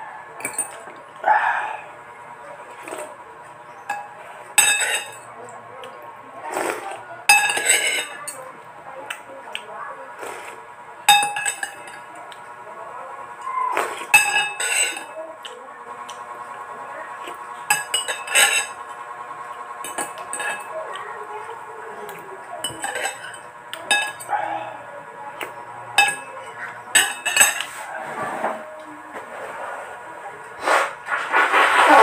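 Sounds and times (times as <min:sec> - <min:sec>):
steady background hum: 0:00.0 - 0:32.0
cutlery clinking against ceramic bowl: 0:00.4 - 0:01.0, 0:03.8 - 0:05.9, 0:07.3 - 0:08.4, 0:11.1 - 0:12.4, 0:13.9 - 0:15.2, 0:17.2 - 0:18.8, 0:19.8 - 0:20.7, 0:22.6 - 0:24.3, 0:25.4 - 0:27.8.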